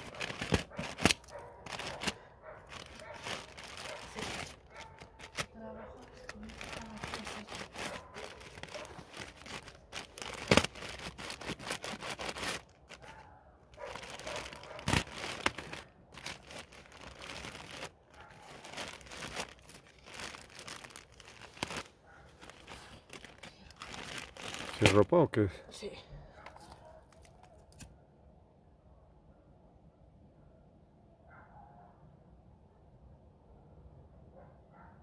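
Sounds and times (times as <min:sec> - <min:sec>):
plastic bag snaps: 0:00.0 - 0:05.5, 0:08.4 - 0:13.0, 0:14.0 - 0:17.9, 0:23.2 - 0:25.0
plastic bag crinkling: 0:00.0 - 0:25.1.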